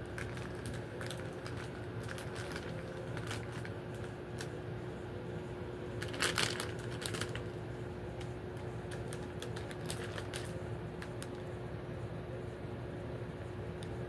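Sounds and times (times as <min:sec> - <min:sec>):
cellophane wrappers crinkling: 0:00.0 - 0:04.6, 0:06.0 - 0:07.6, 0:08.2 - 0:11.5
faint hum: 0:00.0 - 0:14.0.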